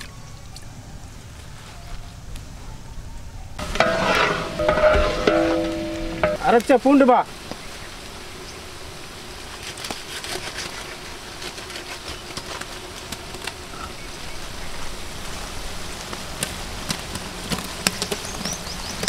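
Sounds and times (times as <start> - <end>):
onions sizzling in a pot: 3.6 - 19.0
pops and crackles: 16.0 - 19.0.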